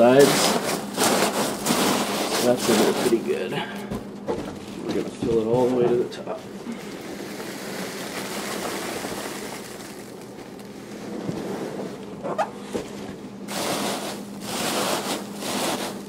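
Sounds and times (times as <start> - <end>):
packing peanuts rustling: 0.0 - 3.4, 6.4 - 11.4, 13.5 - 16.0.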